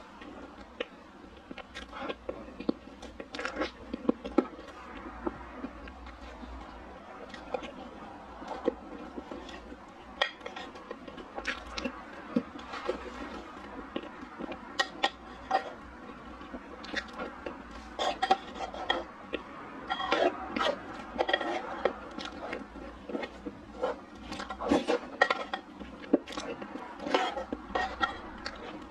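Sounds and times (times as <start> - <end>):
spoon scraping and clicking on plate: 14.5 - 15.8, 18.0 - 28.8.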